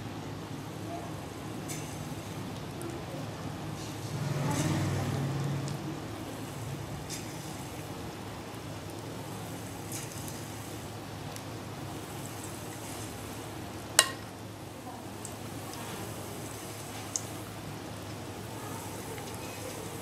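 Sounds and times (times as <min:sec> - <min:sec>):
batter frying in oil: 0:00.0 - 0:20.0
metal spoon clinking pan: 0:14.0 - 0:14.2.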